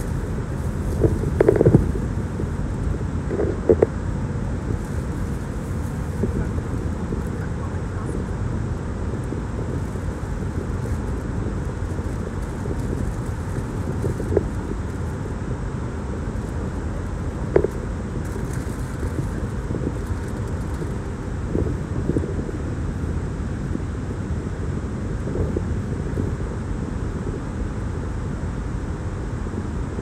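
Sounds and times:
car cabin rumble: 0:00.0 - 0:27.3.

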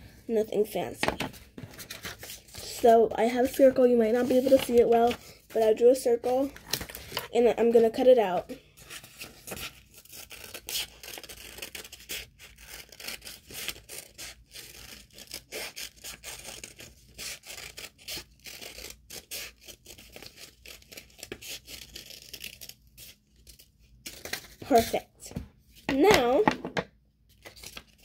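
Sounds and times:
paper rustling: 0:01.0 - 0:05.7
scissors snipping paper: 0:09.5 - 0:23.1.

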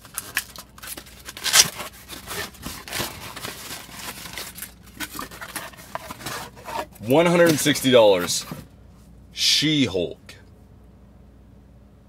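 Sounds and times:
cardboard box scraping and crinkling: 0:00.1 - 0:08.7.

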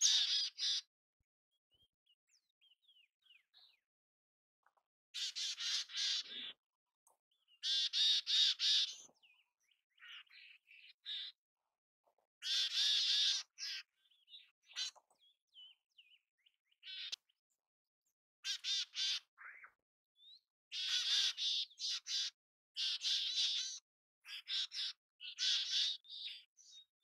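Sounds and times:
chickadee buzzy calls: 0:00.0 - 0:00.9, 0:05.2 - 0:06.6, 0:07.6 - 0:09.2, 0:12.4 - 0:15.1, 0:16.8 - 0:17.2, 0:18.4 - 0:19.6, 0:20.7 - 0:26.5.

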